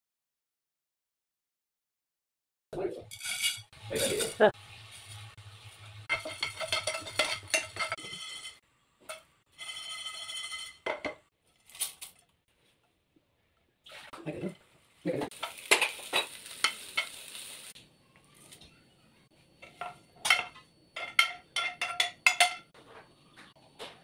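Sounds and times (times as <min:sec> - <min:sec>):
metal utensils clinking: 0:03.1 - 0:04.5, 0:06.0 - 0:12.2, 0:15.3 - 0:17.6, 0:19.6 - 0:22.7
spoon stirring in a steel bowl: 0:06.1 - 0:11.1.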